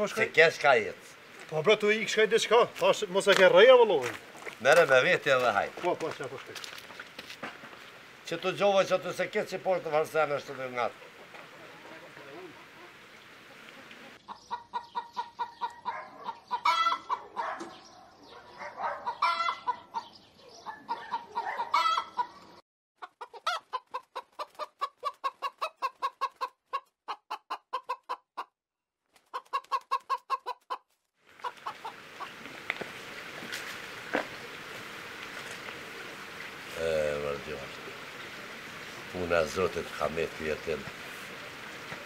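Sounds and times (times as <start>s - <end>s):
chickens clucking: 9.8s - 28.5s, 29.2s - 32.6s
chicken squawks: 11.0s - 13.0s, 13.8s - 17.8s, 18.4s - 28.5s, 29.3s - 30.8s.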